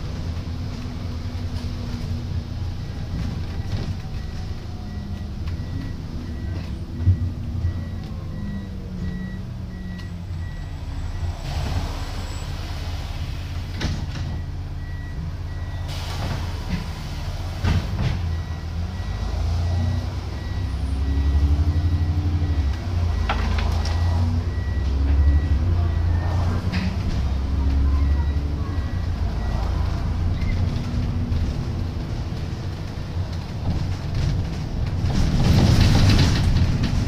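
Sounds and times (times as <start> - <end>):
bus diesel engine: 0.0 - 37.0.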